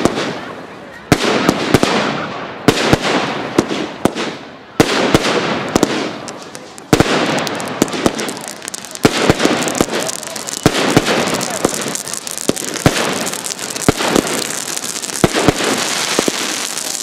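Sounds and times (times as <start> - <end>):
firework shells bursting: 5.0 - 17.0.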